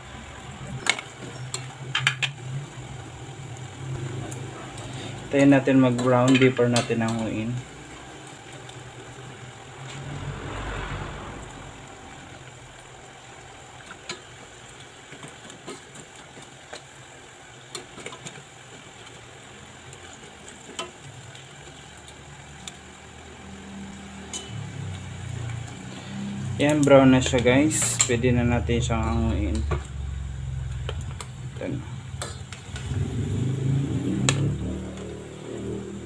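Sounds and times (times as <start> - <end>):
food deep-frying in oil: 0.0 - 36.0
metal tongs clicking on pot: 5.9 - 7.3, 24.3 - 24.6, 32.1 - 32.9
low hum: 9.6 - 13.1.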